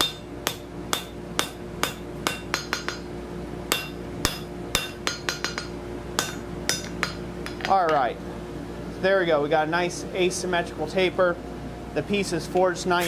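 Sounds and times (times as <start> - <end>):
hammer striking steel on anvil: 0.0 - 3.1, 3.7 - 8.0.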